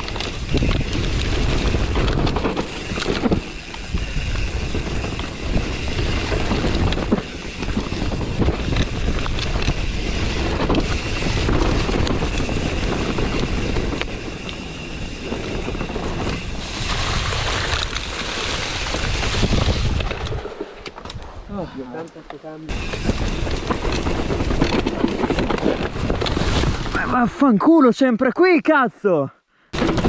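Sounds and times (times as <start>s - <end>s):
wind on the microphone: 0.0s - 20.4s
bike clattering over bumps: 0.0s - 21.2s, 22.7s - 26.9s
tyres on dirt: 0.0s - 27.1s.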